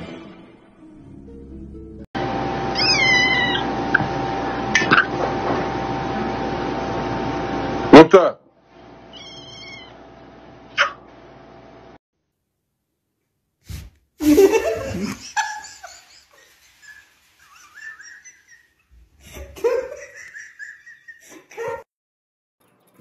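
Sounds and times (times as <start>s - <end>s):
person giggling: 14.2s - 21.9s.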